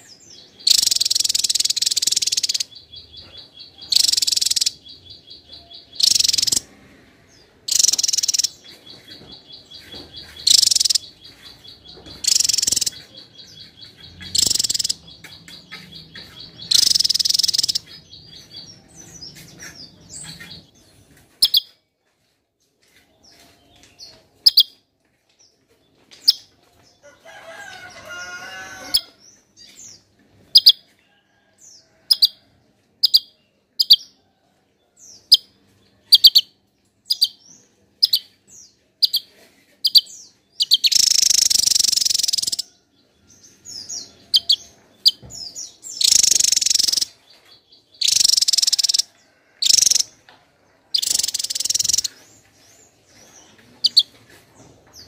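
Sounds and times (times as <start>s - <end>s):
bird calls: 0.0s - 6.8s, 7.4s - 20.7s, 43.5s - 47.2s, 47.9s - 50.2s, 50.9s - 52.3s.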